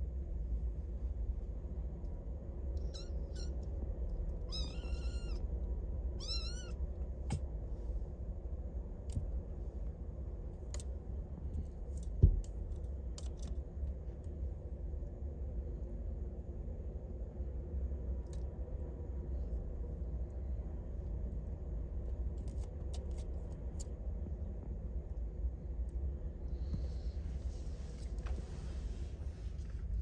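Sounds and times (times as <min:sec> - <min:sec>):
kitten mewing: 0:02.8 - 0:03.6, 0:04.4 - 0:05.4, 0:06.2 - 0:07.4.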